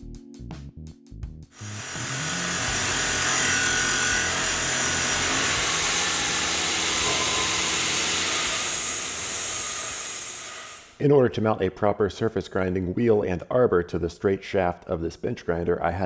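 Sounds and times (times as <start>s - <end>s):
milling machine cutting metal: 1.6s - 11.0s.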